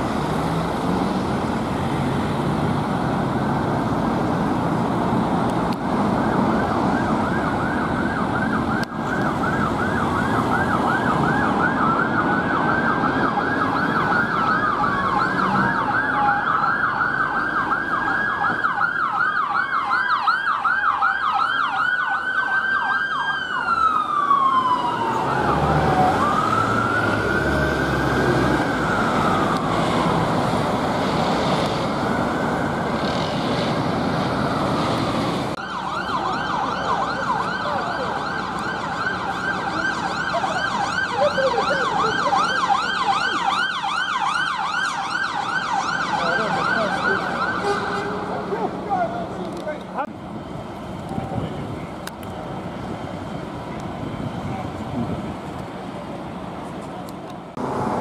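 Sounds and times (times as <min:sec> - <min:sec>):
ambulance siren wail: 0:00.0 - 0:50.1
road traffic: 0:00.0 - 0:58.0
ambulance siren fast yelp: 0:06.2 - 0:30.2, 0:35.6 - 0:49.4.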